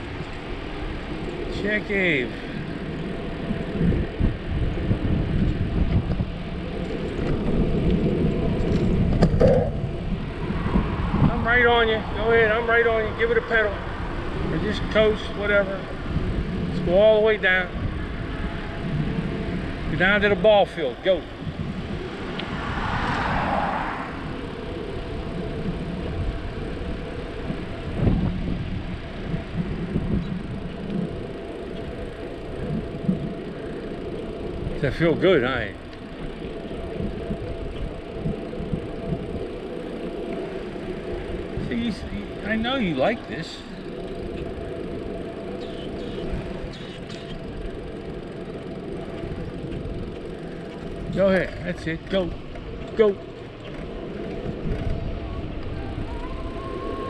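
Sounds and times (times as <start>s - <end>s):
bicycle tyres rolling on asphalt: 0.0s - 57.0s
car passing: 0.0s - 57.0s
wind buffeting microphone: 0.0s - 57.0s
bicycle bump: 5.4s - 11.0s.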